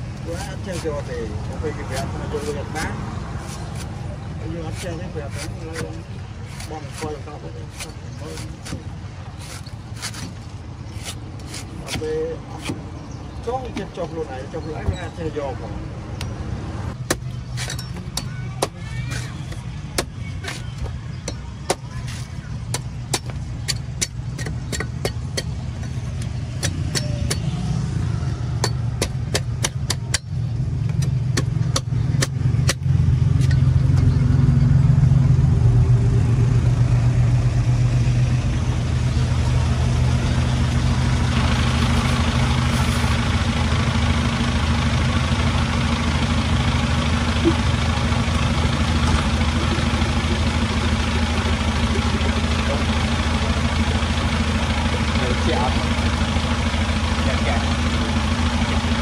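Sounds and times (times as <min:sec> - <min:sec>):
vehicle engine idling: 0:00.0 - 0:59.0
cleaver chopping coconut: 0:01.8 - 0:04.0, 0:04.6 - 0:10.4, 0:11.0 - 0:12.9, 0:17.0 - 0:27.7, 0:28.5 - 0:32.9.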